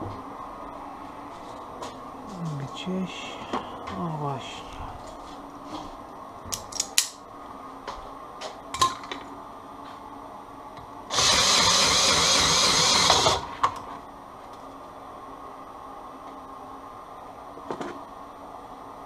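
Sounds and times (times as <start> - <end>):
cordless drill running: 11.1 - 13.5.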